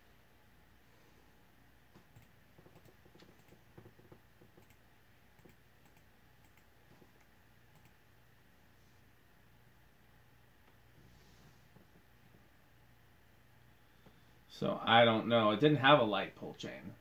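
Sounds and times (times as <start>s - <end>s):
ceiling fan hum: 0.0s - 17.0s
light irregular clicks: 1.9s - 8.0s.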